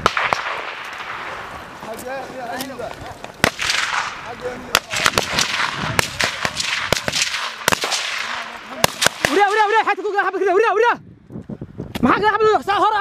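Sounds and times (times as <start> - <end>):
men's voices calling: 1.0 - 11.0
gunshots with echo: 3.4 - 9.8.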